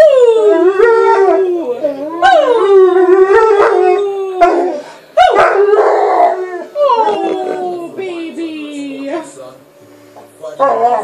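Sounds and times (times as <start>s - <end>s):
dog howling: 0.0s - 8.0s.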